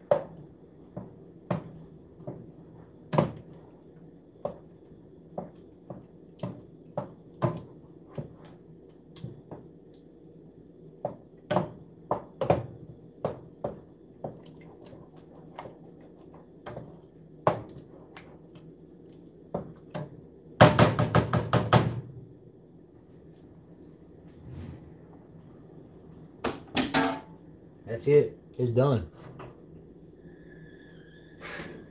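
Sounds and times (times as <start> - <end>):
wooden spoon stirring thick dip: 0.0 - 10.0, 11.0 - 20.2.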